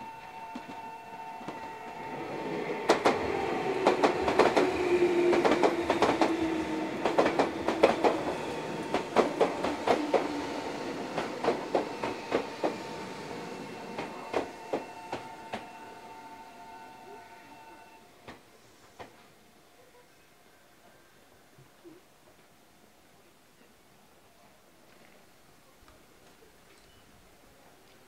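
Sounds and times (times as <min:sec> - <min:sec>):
electric train rumbling past: 0:00.0 - 0:19.5.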